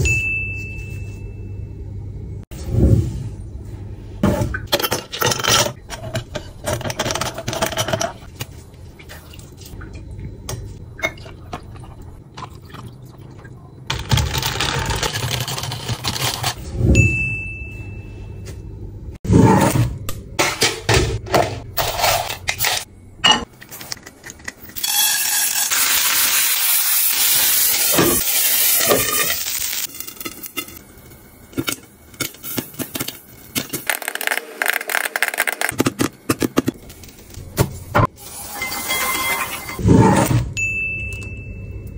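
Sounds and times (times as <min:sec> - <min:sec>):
utensils clinking against dishes: 0:38.5 - 0:39.8.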